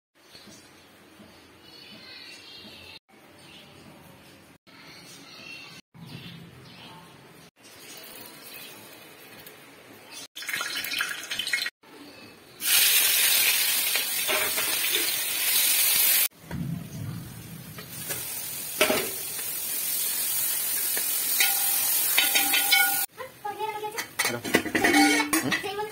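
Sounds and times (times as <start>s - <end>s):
hot oil sizzling in a pan: 12.6s - 23.1s.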